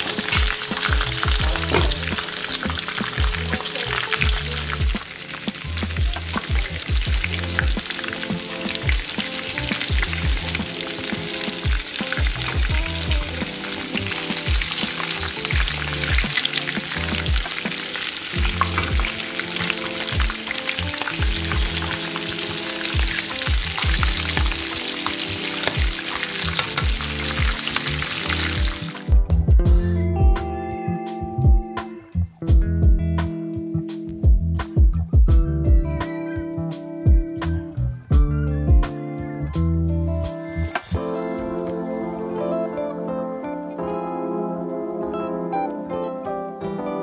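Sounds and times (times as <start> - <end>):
chicken sizzling in hot oil: 0.0 - 29.0
background music with steady beat: 0.0 - 43.2.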